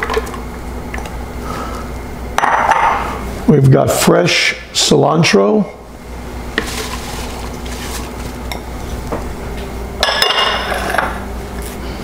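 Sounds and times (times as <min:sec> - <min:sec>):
steady low hum: 0:00.0 - 0:12.0
herbs rustling: 0:06.6 - 0:09.1.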